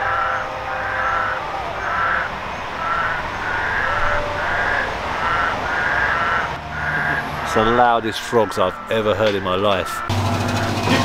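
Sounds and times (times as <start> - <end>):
frogs calling: 0.0 - 10.8.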